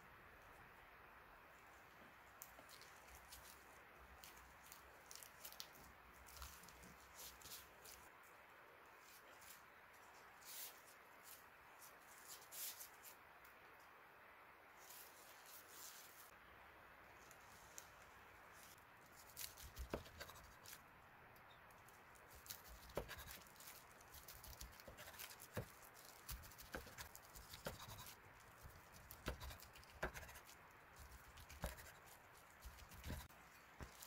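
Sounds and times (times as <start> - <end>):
knife slicing food: 22.6 - 23.5, 24.5 - 30.5, 31.1 - 32.0.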